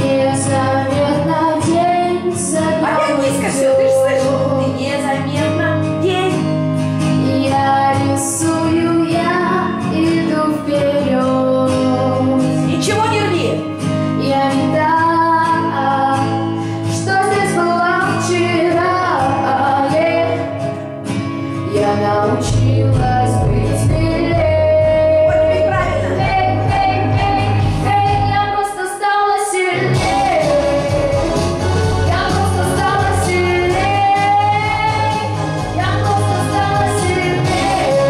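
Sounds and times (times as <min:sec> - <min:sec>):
instrumental accompaniment: 0:00.0 - 0:28.8, 0:29.6 - 0:38.0
girl singing pop song: 0:00.0 - 0:38.0
bass line: 0:17.1 - 0:28.7, 0:29.8 - 0:38.0.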